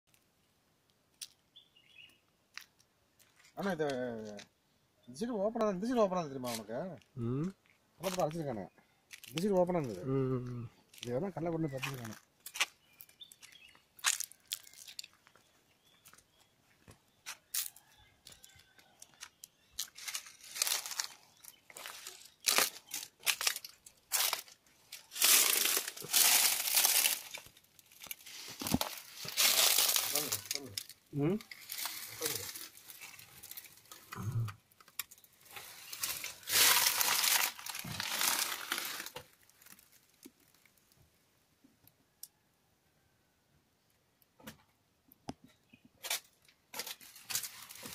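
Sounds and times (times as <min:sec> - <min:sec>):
footsteps on dry leaves and concrete: 0:02.5 - 0:04.4, 0:08.0 - 0:08.3, 0:09.1 - 0:10.0, 0:10.9 - 0:34.0, 0:35.1 - 0:40.1, 0:46.1 - 0:47.9.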